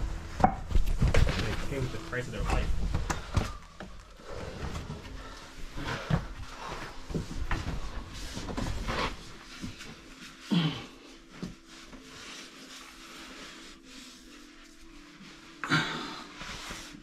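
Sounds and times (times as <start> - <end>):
people shuffling over rock: 0.7 - 10.3.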